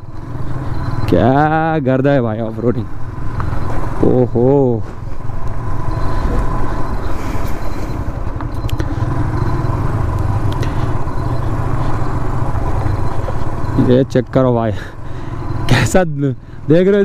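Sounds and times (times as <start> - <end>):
motorcycle engine running: 0.0 - 17.0
sharp ticks: 8.3 - 14.5.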